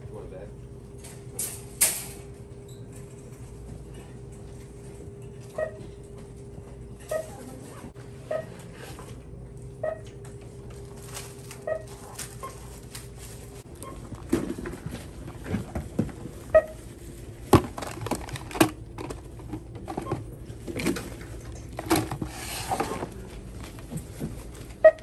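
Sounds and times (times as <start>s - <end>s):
items clattering and knocking: 10.7s - 25.0s.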